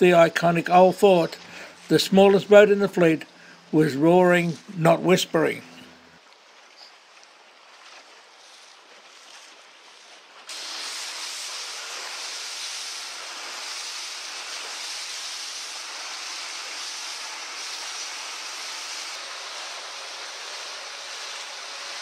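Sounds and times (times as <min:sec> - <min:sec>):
rushing water: 0:06.2 - 0:22.0.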